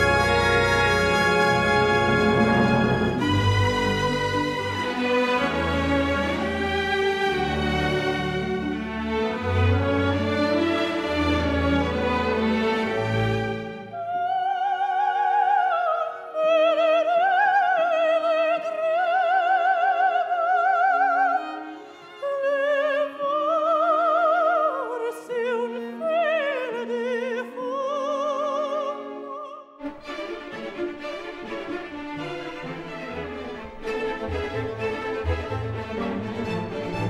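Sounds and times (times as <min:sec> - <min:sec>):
orchestra playing: 0:00.0 - 0:14.1, 0:29.0 - 0:37.0
operatic soprano singing: 0:13.8 - 0:29.9.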